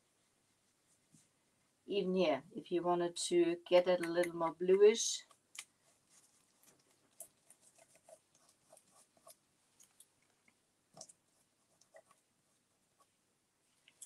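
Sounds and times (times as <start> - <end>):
gloved hand rubbing wood: 5.7 - 9.4.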